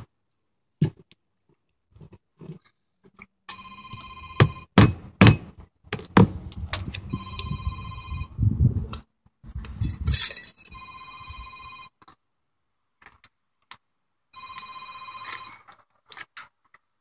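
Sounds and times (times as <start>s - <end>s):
phone ringing: 3.5s - 4.8s, 7.1s - 8.4s, 10.7s - 12.0s, 14.3s - 15.7s
hammer striking nail on metal: 4.8s - 5.5s.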